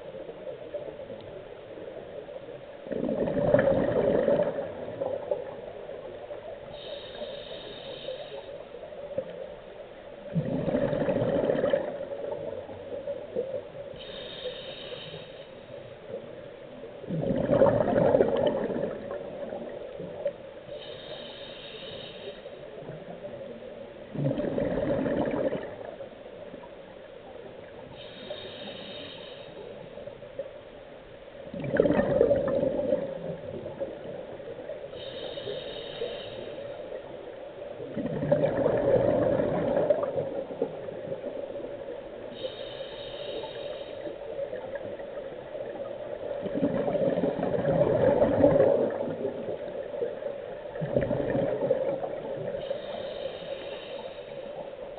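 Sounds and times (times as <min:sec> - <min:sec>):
exhaled bubbles rushing: 0:02.9 - 0:05.2, 0:10.3 - 0:12.5, 0:17.1 - 0:19.8, 0:24.1 - 0:25.9, 0:31.5 - 0:34.0, 0:37.9 - 0:40.7, 0:46.4 - 0:49.8, 0:50.7 - 0:52.6
diver breathing through a regulator: 0:06.6 - 0:08.9, 0:13.9 - 0:15.8, 0:20.0 - 0:22.9, 0:27.8 - 0:30.0, 0:34.8 - 0:37.1, 0:42.2 - 0:44.7, 0:51.5 - 0:54.9.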